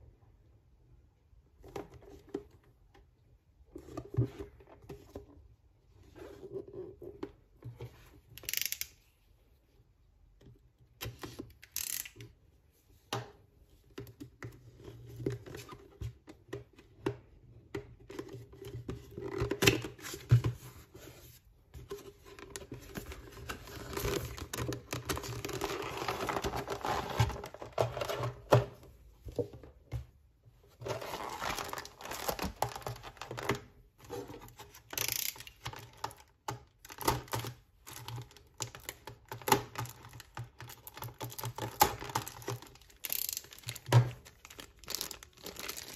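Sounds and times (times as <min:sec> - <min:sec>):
plastic crinkling: 0:40.7 - 0:45.9.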